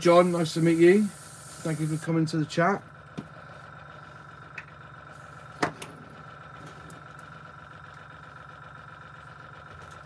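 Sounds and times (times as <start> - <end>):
air compressor humming: 0.0 - 10.0.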